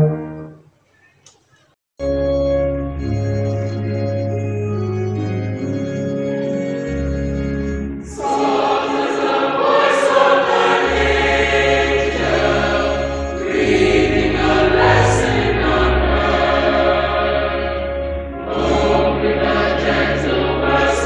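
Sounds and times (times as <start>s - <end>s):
keyboard accompaniment: 0.0s - 0.7s, 2.0s - 21.0s
choir singing a hymn: 8.0s - 21.0s.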